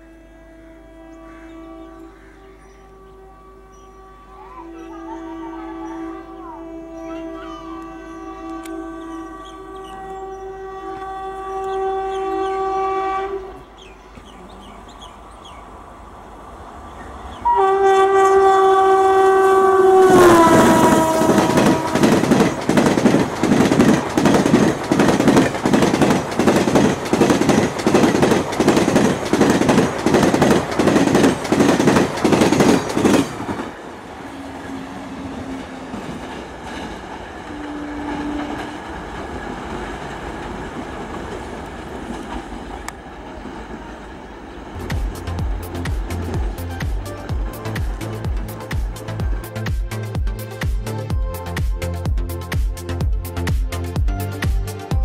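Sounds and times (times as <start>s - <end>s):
train horn blasts: 0.0s - 15.0s, 17.3s - 39.3s
lower train horn blasts: 0.0s - 15.4s, 16.8s - 40.1s, 44.7s - 50.2s
train wheels clickety-clack: 19.8s - 33.8s, 35.2s - 51.0s.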